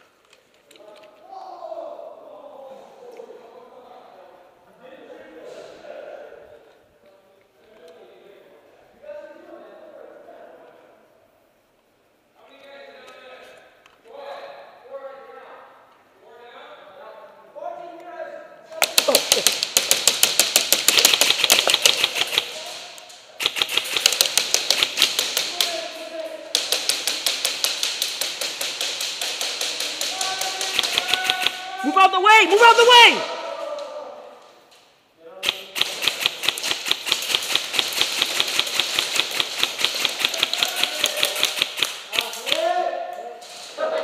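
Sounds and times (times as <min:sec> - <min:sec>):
airsoft guns firing full auto: 0:18.8 - 0:22.8, 0:23.4 - 0:25.8, 0:26.5 - 0:31.6, 0:35.4 - 0:42.6.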